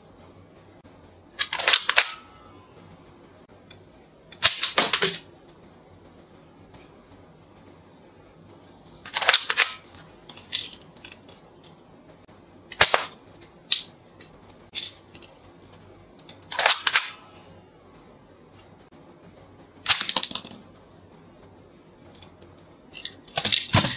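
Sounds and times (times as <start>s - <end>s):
toy rifle shots: 1.4s - 2.6s, 4.4s - 5.2s, 9.1s - 9.8s, 12.8s - 13.1s, 16.5s - 17.2s, 19.9s - 20.4s.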